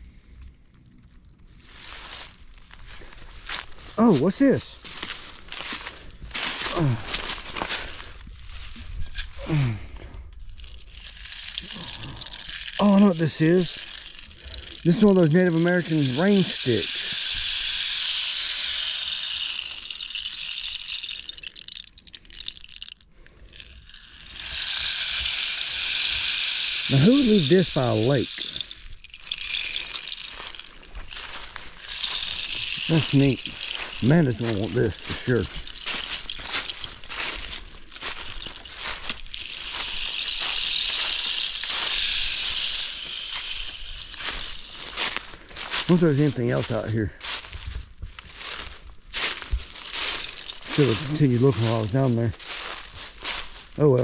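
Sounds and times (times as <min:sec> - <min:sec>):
rain stick hissing and clicking: 0:10.4 - 0:46.4.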